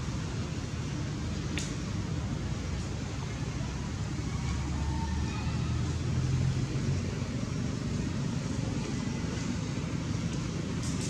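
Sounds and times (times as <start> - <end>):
vehicle engine rumble: 0.0 - 11.0.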